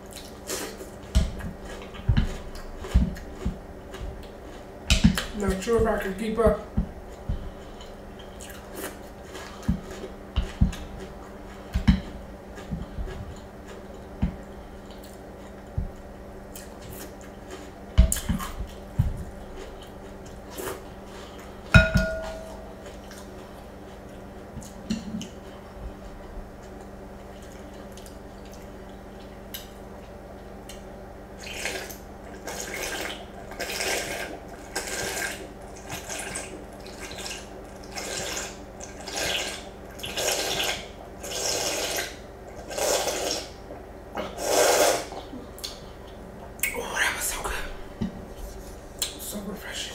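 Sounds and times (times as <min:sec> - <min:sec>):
chewing: 0:00.0 - 0:05.3, 0:07.1 - 0:21.6, 0:22.2 - 0:30.8
spoon knocking in glass bowl: 0:21.8 - 0:22.6
slurping milk: 0:31.4 - 0:43.5, 0:44.2 - 0:45.2.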